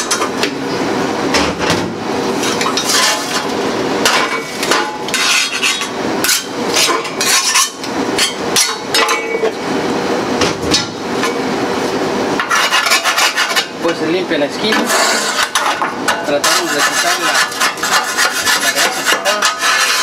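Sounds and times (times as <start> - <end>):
metal grates clanking: 2.4 - 9.6, 14.6 - 20.0
wire brush scraping grates: 2.5 - 3.4, 12.4 - 13.6, 14.7 - 15.7, 16.3 - 20.0.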